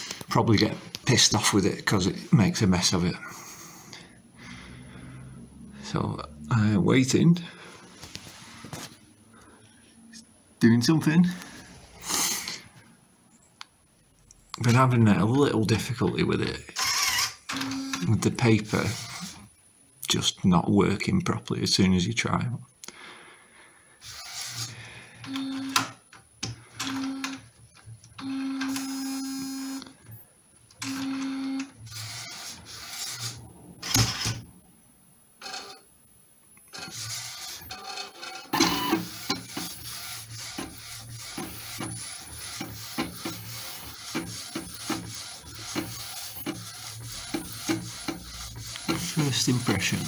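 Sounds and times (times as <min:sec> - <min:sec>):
printer motor hums: 0:16.8 - 0:19.4, 0:24.0 - 0:25.9, 0:26.8 - 0:27.4, 0:28.2 - 0:29.8, 0:30.8 - 0:34.4, 0:36.7 - 0:50.0
print carriage rasping ticks: 0:36.8 - 0:50.0.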